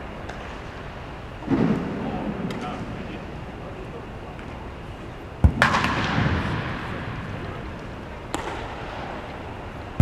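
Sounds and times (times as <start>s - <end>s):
baseball bat cracking ball: 5.4s - 10.0s.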